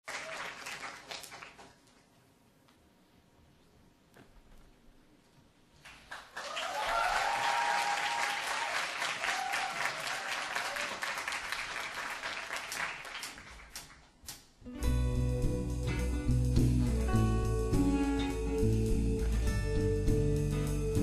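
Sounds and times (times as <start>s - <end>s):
audience applauding: 0.0s - 1.9s, 5.8s - 14.0s
acoustic guitar playing: 14.7s - 21.0s.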